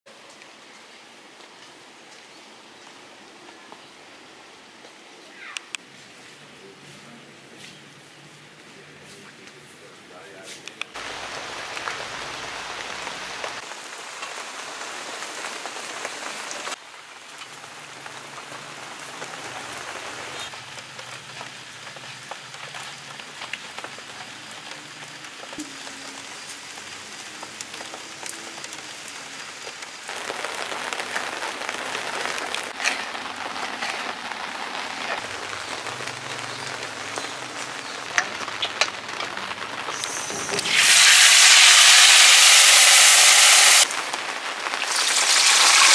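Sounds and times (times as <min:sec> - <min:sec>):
steady rain hiss: 0:00.1 - 0:45.9
raindrops pattering: 0:10.8 - 0:45.9.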